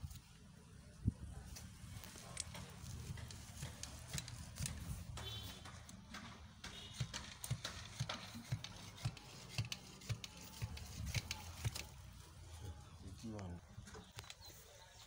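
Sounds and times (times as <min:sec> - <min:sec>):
dull knocks of soil tamping: 0:02.5 - 0:11.8.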